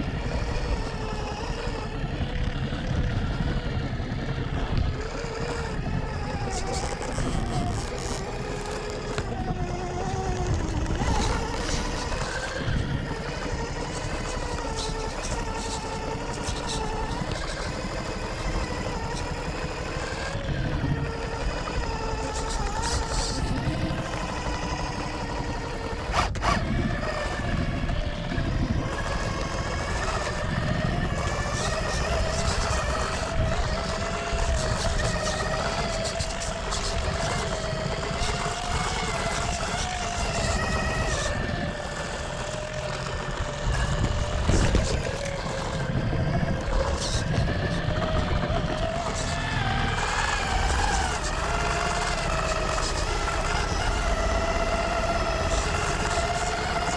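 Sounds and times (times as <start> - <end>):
electric motor whine: 0.0 - 56.9
tyres scraping on rock: 26.1 - 27.5, 28.8 - 54.6.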